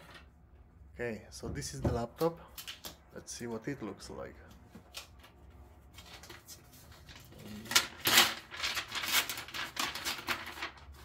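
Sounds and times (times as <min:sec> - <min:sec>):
packaging wrap rustling: 0:05.9 - 0:11.0.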